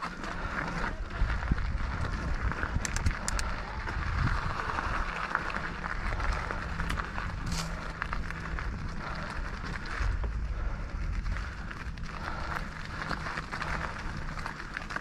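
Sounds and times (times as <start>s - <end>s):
bike rattles: 0.0s - 15.0s
bike tyres rumbling on dirt: 0.0s - 15.0s
wind on microphone: 0.4s - 14.7s
sharp clicks: 2.7s - 3.6s.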